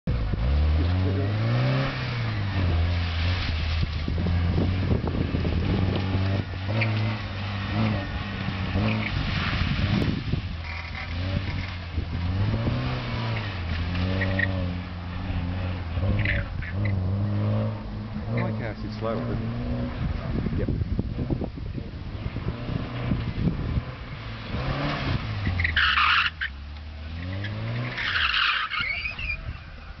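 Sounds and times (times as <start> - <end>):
car engine revving: 0.0 - 30.0
tyre squeal: 6.7 - 8.2, 13.3 - 14.8, 16.0 - 17.4, 25.3 - 26.6, 27.2 - 29.9.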